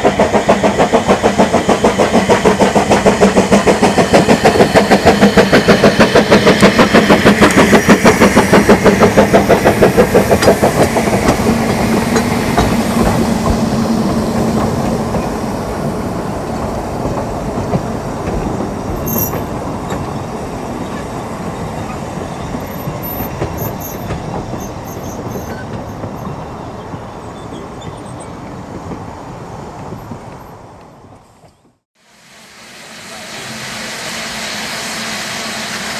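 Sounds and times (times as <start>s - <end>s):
steam locomotive exhaust beats: 0.0s - 35.9s
carriages rolling over rail joints: 5.8s - 31.8s.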